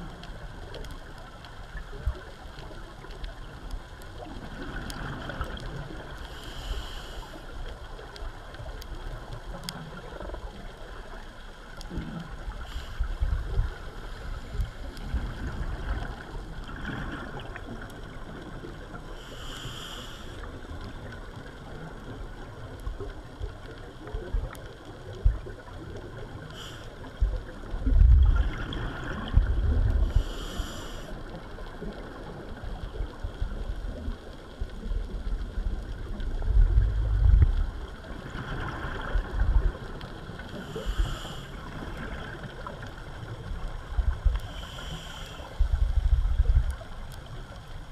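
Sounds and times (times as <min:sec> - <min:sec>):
gurgling exhaled bubbles: 0:01.7 - 0:06.3, 0:07.8 - 0:19.2, 0:20.4 - 0:47.9
scuba regulator hissing inhalations: 0:06.3 - 0:07.4, 0:19.2 - 0:20.4, 0:26.6 - 0:26.9, 0:30.0 - 0:31.2, 0:40.6 - 0:41.6, 0:44.5 - 0:45.7.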